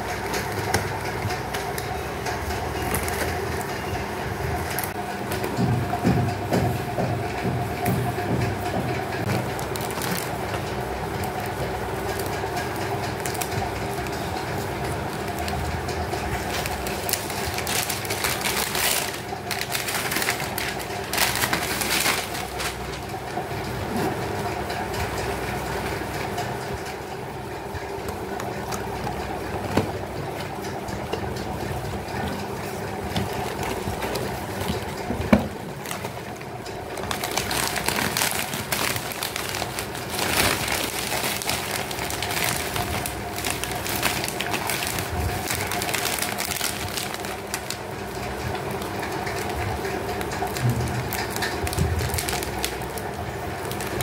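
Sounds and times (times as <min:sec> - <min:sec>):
wrapping paper crinkling: 0:09.4 - 0:23.4, 0:32.1 - 0:54.0.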